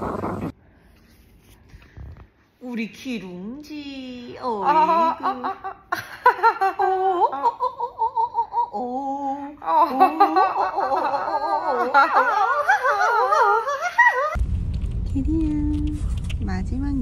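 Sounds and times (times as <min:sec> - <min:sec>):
women laughing and giggling: 0:04.6 - 0:08.9, 0:09.6 - 0:14.4.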